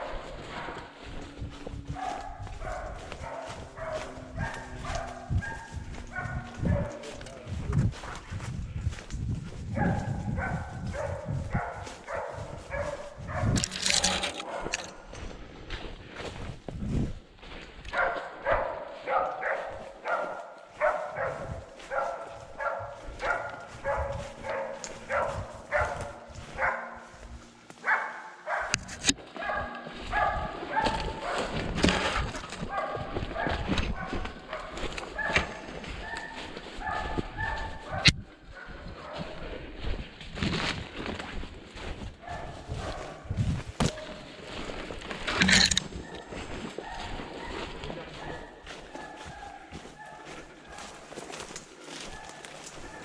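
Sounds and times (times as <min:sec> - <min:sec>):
dog barking: 0:00.0 - 0:07.6, 0:09.6 - 0:15.3, 0:17.8 - 0:40.0, 0:41.8 - 0:53.0
thudding footsteps: 0:00.0 - 0:53.0.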